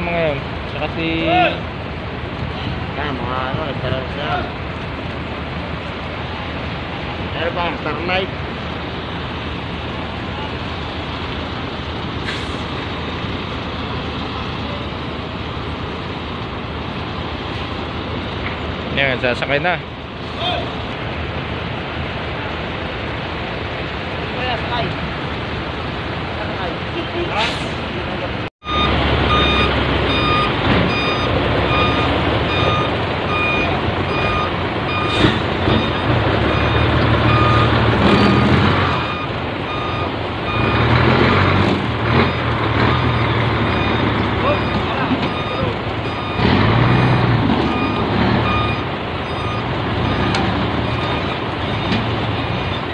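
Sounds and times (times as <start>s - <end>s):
truck diesel engines rumbling: 0.0s - 52.9s
reversing alarm beeping: 28.6s - 52.9s.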